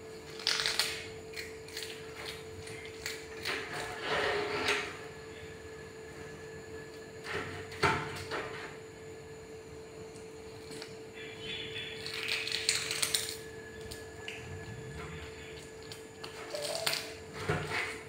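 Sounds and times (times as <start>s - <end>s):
faint hum: 0.0s - 18.0s
knocks and scrapes on tiled floor: 3.4s - 5.0s, 17.3s - 18.0s.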